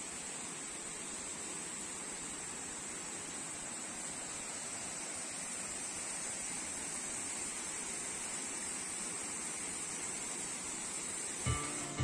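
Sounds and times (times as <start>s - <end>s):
high hiss: 0.0s - 12.0s
waterfall rushing: 11.2s - 12.0s.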